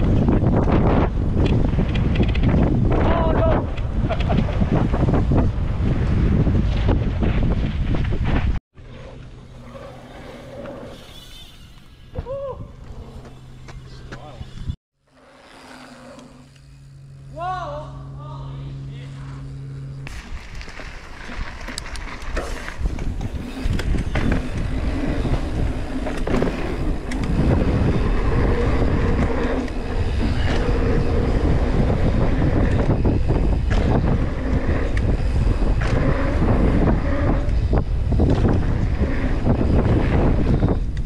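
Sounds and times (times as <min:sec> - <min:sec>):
wind buffeting microphone: 0:00.0 - 0:08.6, 0:20.1 - 0:41.0
tyres rumbling on packed dirt: 0:20.2 - 0:40.7.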